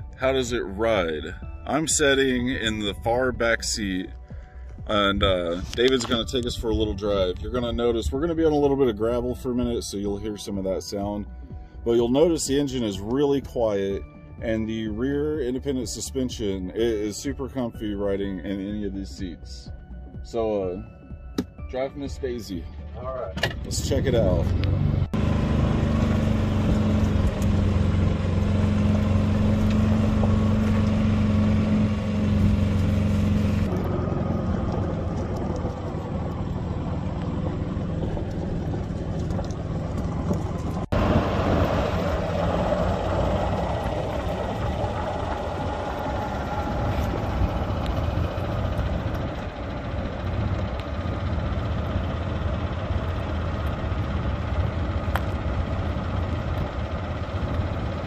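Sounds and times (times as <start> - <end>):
golf cart engine hum: 0.0 - 58.0
tyres crunching over gravel: 25.2 - 49.5.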